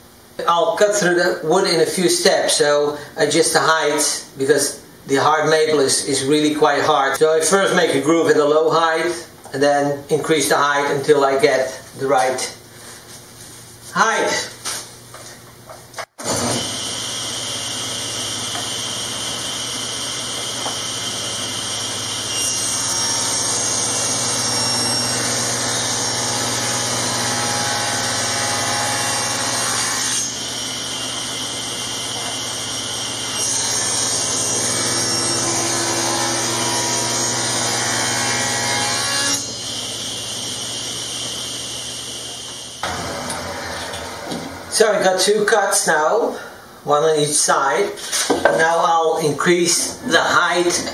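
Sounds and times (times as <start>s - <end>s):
saw blade cutting wood: 16.2s - 44.5s
table saw running: 16.2s - 44.9s.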